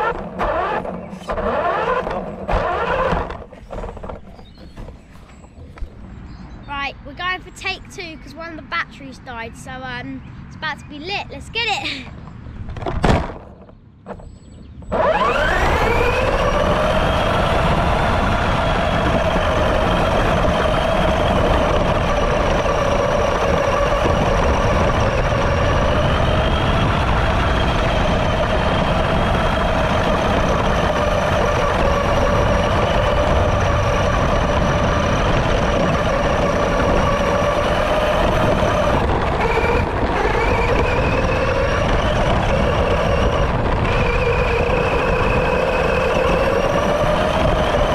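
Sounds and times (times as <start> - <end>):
electric motor whining: 0.0 - 6.1, 14.8 - 47.9
tyres on grass: 0.0 - 6.2
wind rumble: 0.0 - 47.9.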